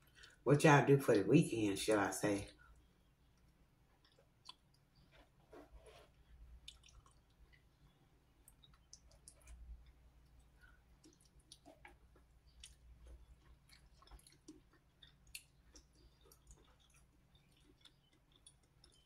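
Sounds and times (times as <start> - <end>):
faint chewing with mouth clicks: 0.0 - 0.4, 2.4 - 19.0.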